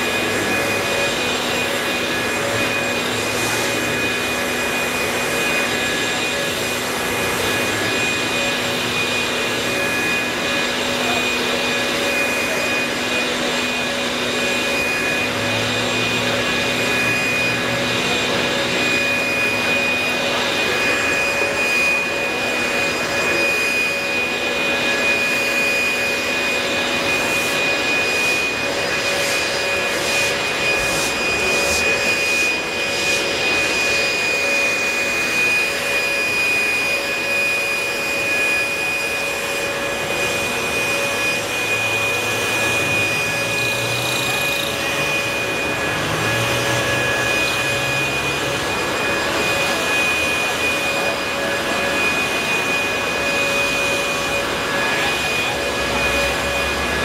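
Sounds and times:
leaf blower running: 0:00.0 - 0:57.0.

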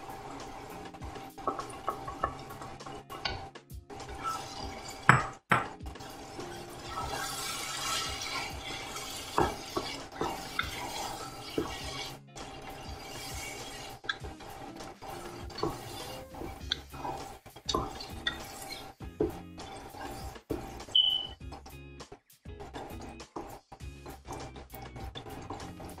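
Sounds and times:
wooden spatula scraping a pot: 0:00.0 - 0:21.6, 0:22.6 - 0:26.0
vegetables frying: 0:06.0 - 0:20.8.

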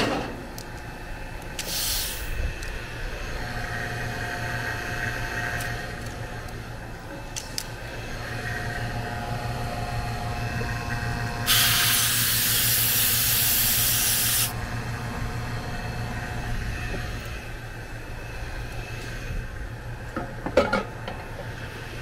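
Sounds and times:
refrigerant gas hissing: 0:01.3 - 0:03.2, 0:11.4 - 0:14.6.

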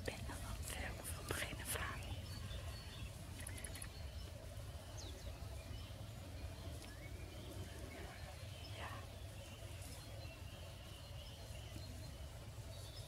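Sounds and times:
faint bird calls: 0:00.0 - 0:13.0.

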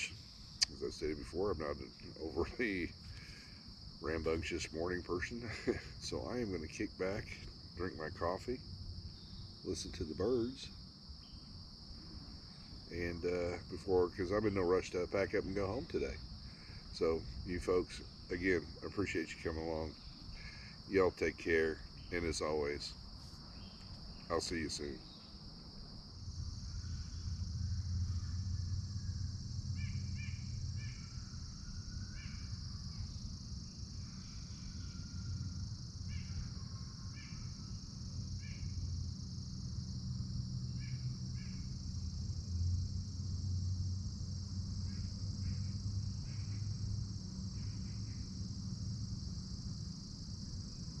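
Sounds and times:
insects droning: 0:00.0 - 0:51.0.

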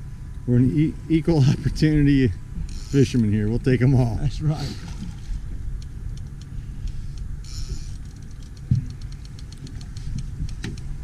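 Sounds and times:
outboard motor rumbling: 0:00.0 - 0:11.0
light ticks: 0:05.8 - 0:10.9.

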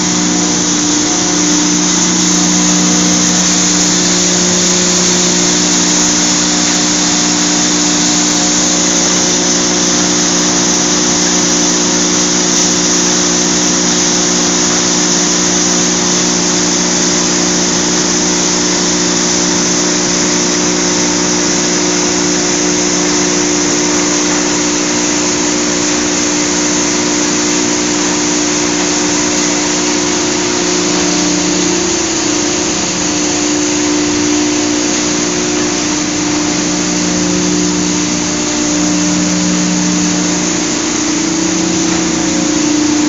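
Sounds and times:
industrial machinery hum: 0:00.0 - 0:43.0.

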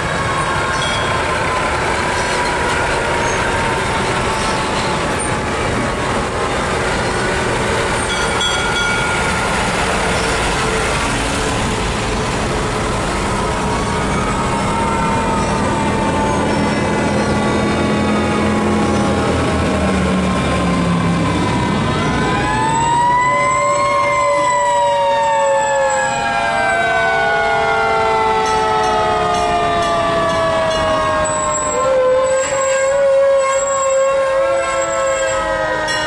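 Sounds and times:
fire truck engine rumble: 0:00.0 - 0:36.0
fire siren winding: 0:21.9 - 0:36.0.

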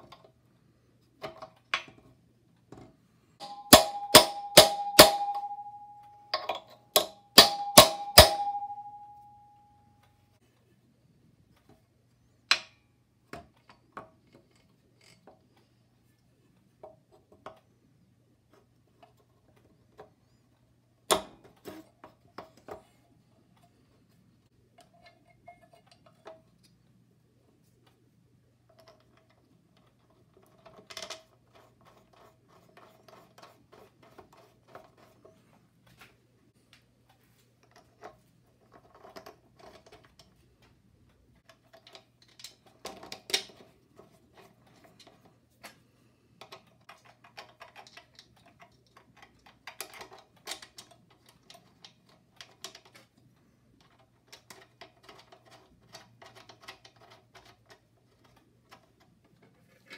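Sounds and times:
sharp knock on metal: 0:03.4 - 0:05.8, 0:07.0 - 0:09.0.

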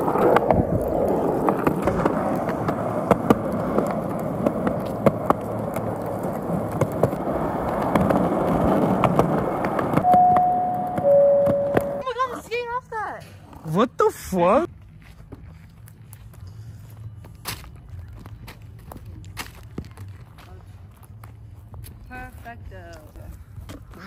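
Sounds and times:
skateboard wheels rolling on concrete: 0:00.0 - 0:24.0
two-note falling chime: 0:10.0 - 0:12.0.

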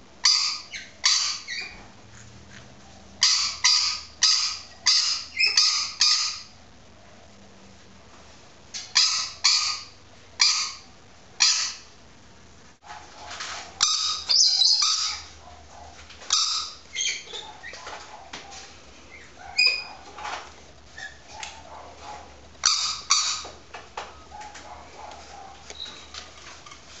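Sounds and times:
parrot barking calls: 0:00.2 - 0:01.8, 0:03.2 - 0:06.6, 0:08.8 - 0:12.0, 0:13.7 - 0:20.4, 0:21.0 - 0:23.6
dog barking: 0:14.9 - 0:16.0, 0:17.4 - 0:18.7, 0:19.4 - 0:20.2, 0:21.3 - 0:22.4, 0:24.3 - 0:25.7.

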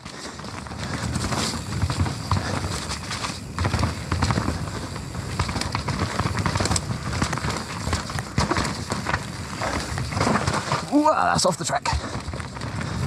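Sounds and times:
bike clicking and rattling: 0:00.0 - 0:13.0
tyres rumbling on dirt: 0:00.0 - 0:13.0.

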